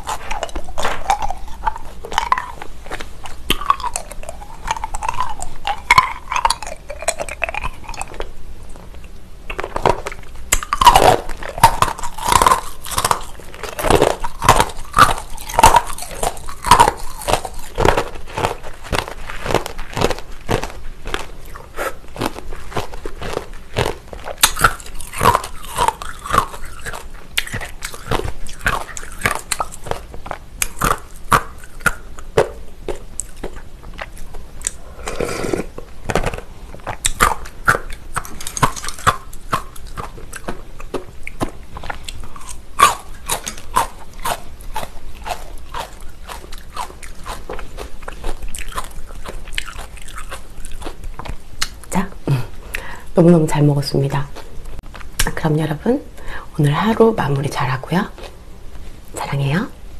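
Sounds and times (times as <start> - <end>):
wet mouth clicks: 0.0 - 8.4, 9.0 - 35.8, 48.0 - 53.0
chewing and crunching: 0.0 - 56.0, 56.7 - 59.6.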